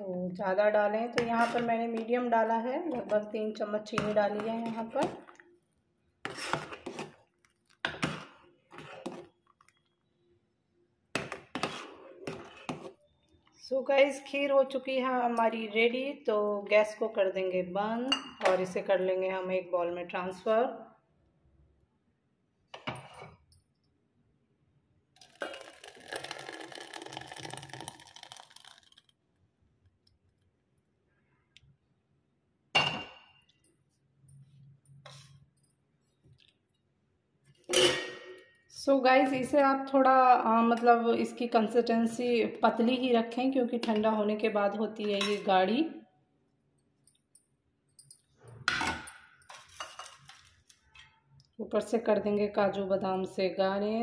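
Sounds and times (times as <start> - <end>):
ladle scraping metal pan: 1.2 - 2.0, 6.2 - 7.2, 11.5 - 13.0
thick liquid pouring into a bowl: 25.2 - 29.2.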